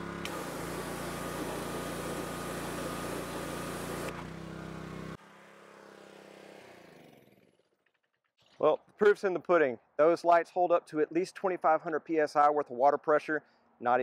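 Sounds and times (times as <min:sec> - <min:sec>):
high-pressure water jet hissing: 0:00.0 - 0:04.2
pressure washer engine running: 0:00.0 - 0:05.2.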